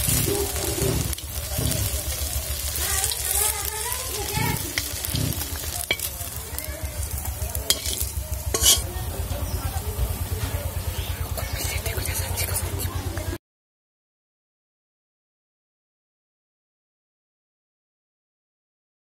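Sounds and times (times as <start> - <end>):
oil sizzling: 0.0 - 13.2
metal spatula scraping pan: 4.2 - 6.1, 7.7 - 8.9.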